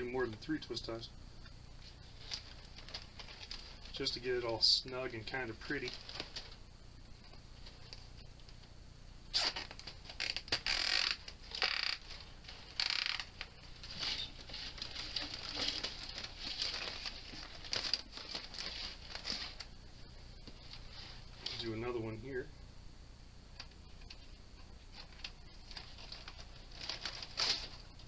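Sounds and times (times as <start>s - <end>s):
zip ties ratcheting: 9.3s - 12.0s
mesh and foam rustling: 11.4s - 22.4s.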